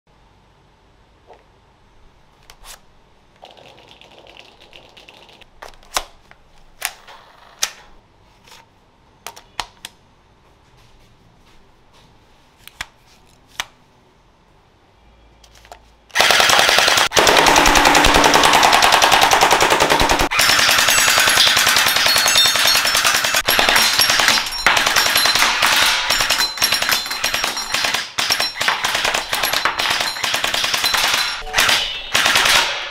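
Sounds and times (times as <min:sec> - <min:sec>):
gel blaster firing bursts: 0:16.2 - 0:22.1.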